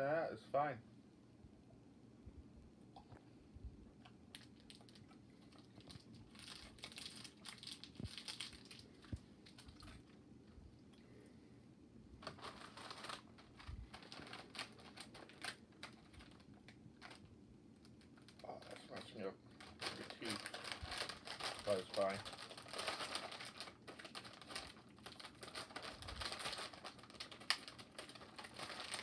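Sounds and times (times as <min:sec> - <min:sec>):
plastic wrapper crinkling: 0:04.3 - 0:10.2, 0:12.2 - 0:29.0.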